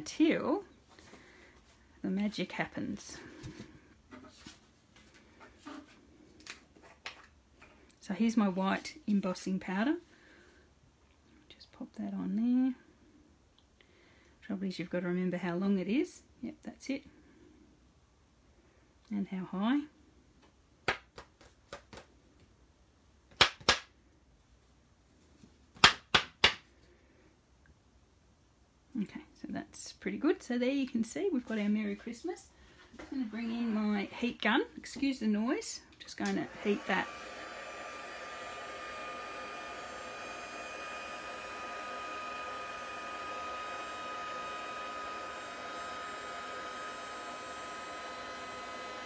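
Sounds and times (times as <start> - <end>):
heat gun blowing with high whine: 33.2 - 34.4, 36.2 - 49.0.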